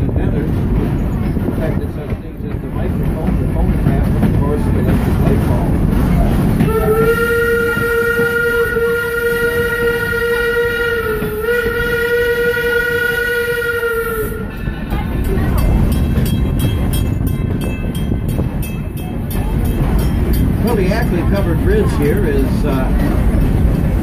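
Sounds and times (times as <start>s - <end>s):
rumble of moving train: 0.0s - 24.0s
train ticking: 0.0s - 24.0s
steam locomotive whistle: 6.6s - 14.6s.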